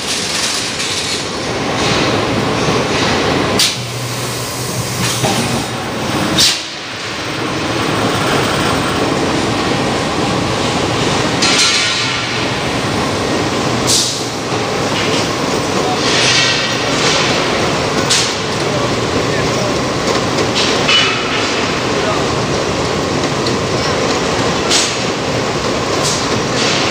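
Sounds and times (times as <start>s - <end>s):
clattering forging machinery: 0.0s - 26.9s.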